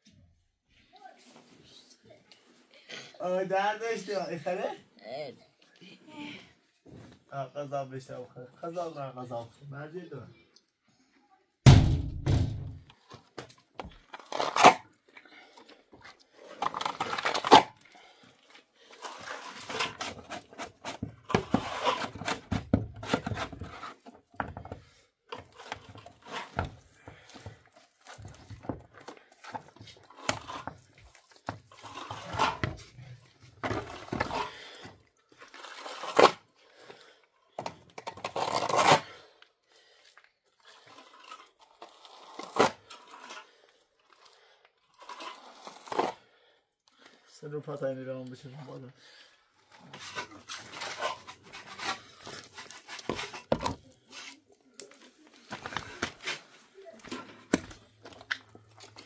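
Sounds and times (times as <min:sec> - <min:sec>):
sharp knocks: 0:11.7 - 0:12.8
plaster scraping on wall: 0:18.9 - 0:34.8, 0:49.8 - 0:54.4.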